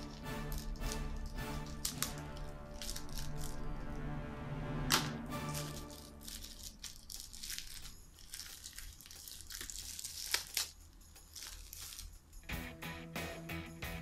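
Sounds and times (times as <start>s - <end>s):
plastic wrapping crinkling: 0.0s - 4.0s, 5.4s - 12.5s.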